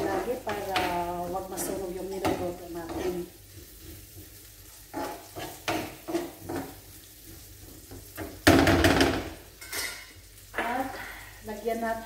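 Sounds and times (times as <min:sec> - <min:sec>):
onions sizzling in oil: 0:00.0 - 0:12.0
metal spoon scraping a pan: 0:01.6 - 0:08.2, 0:09.6 - 0:10.2.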